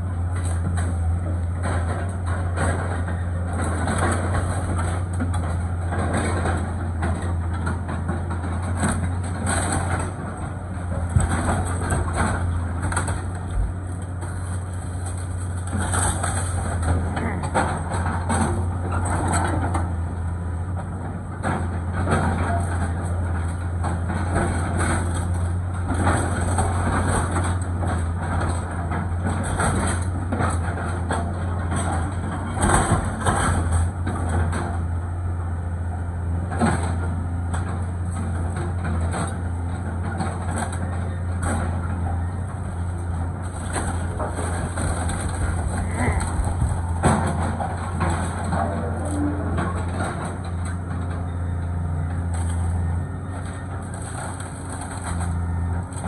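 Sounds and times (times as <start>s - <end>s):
excavator diesel engine running: 0.0s - 56.0s
debris falling: 39.0s - 51.2s
wood splintering: 42.8s - 50.8s.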